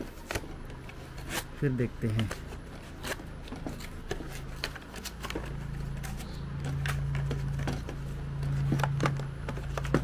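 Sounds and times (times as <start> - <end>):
paper and plastic packaging tearing: 0.0 - 7.6.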